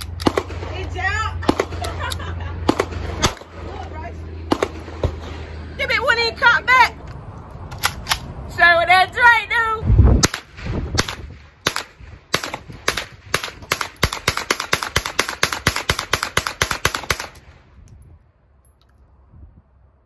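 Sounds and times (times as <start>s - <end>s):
rifle shots: 0.0s - 2.0s, 2.6s - 3.6s, 4.5s - 5.6s, 10.2s - 17.6s.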